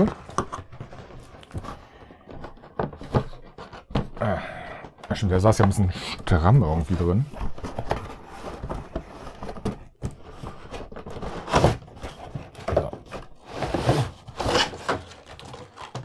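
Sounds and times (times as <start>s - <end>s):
cardboard rubbing and scraping: 6.5s - 16.0s.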